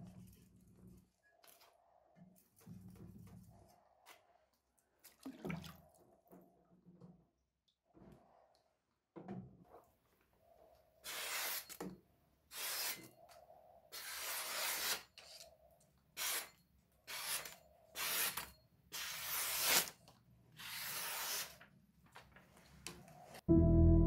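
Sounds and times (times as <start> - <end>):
cleaver slicing paper: 14.0 - 15.1, 17.1 - 20.0, 20.6 - 21.6.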